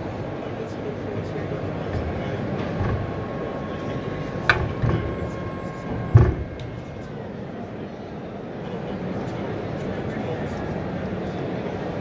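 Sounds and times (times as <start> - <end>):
electric gate drive whining: 1.8 - 7.2
heavy gate thump: 1.9 - 3.4, 4.4 - 7.0.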